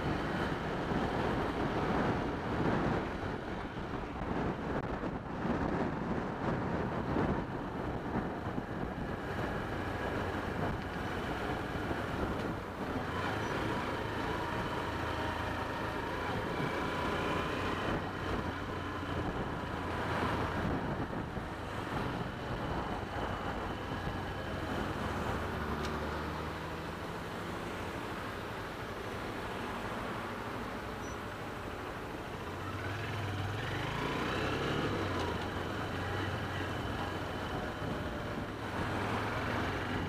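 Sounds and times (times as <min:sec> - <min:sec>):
wind noise on microphone: 0:00.0 - 0:27.8
motorcycle engine at low revs: 0:00.0 - 0:40.0.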